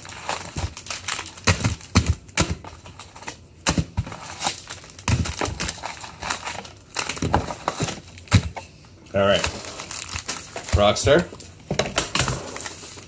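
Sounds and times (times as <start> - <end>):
wrapper crinkle: 0.0 - 1.9, 9.2 - 11.2
card packs tapping on countertop: 1.4 - 4.2.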